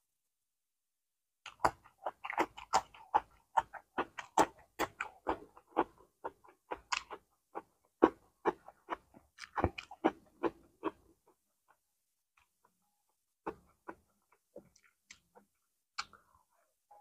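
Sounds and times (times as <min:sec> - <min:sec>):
chewing with wet mouth clicks: 0:01.4 - 0:11.8, 0:13.4 - 0:16.3.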